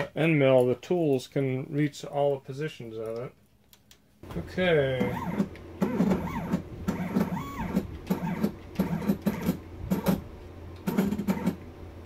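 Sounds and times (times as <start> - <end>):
steady low hum: 0.0 - 12.0
stepper motors whining: 4.9 - 10.2.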